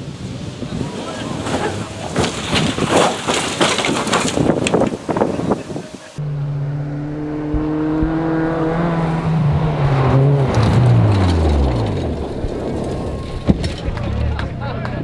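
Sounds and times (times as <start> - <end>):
rally car engine passing by: 6.2 - 15.0.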